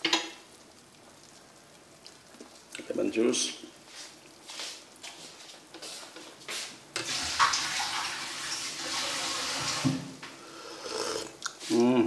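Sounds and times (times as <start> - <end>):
soup bubbling: 0.0 - 12.0.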